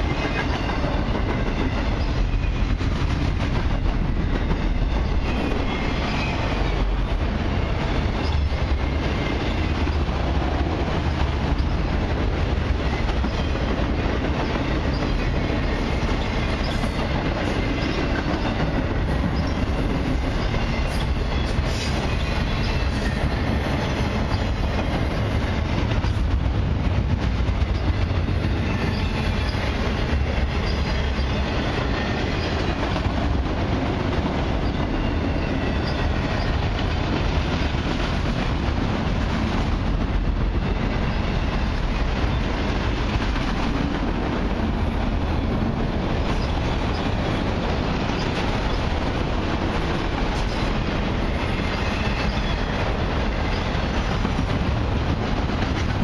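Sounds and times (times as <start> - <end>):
freight train wheels rumbling on rail: 0.0 - 56.0.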